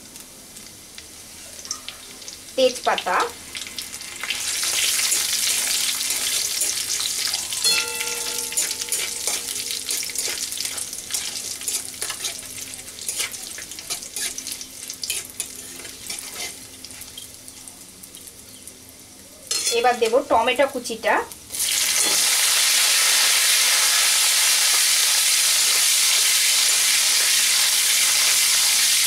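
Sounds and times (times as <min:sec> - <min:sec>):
spices sizzling in oil: 0:00.0 - 0:29.0
metal spatula scraping a pan: 0:04.2 - 0:17.1, 0:19.5 - 0:19.9.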